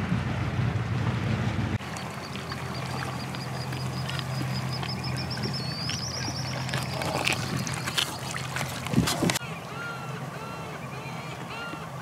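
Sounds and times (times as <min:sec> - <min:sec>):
boat engine humming: 0:00.0 - 0:12.0
bird chirping rapidly: 0:01.8 - 0:08.4.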